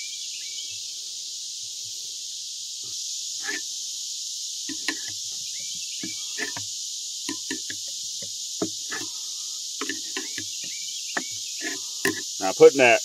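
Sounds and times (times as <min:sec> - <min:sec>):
insect chorus: 0:00.0 - 0:13.0
short knocks and clinks: 0:07.3 - 0:09.1.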